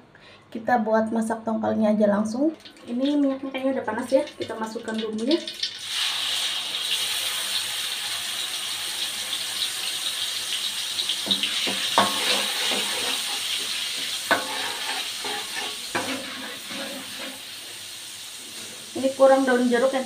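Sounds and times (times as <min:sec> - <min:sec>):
paste sizzling in hot oil: 0:02.7 - 0:20.0
metal spatula scraping wok: 0:11.2 - 0:17.7.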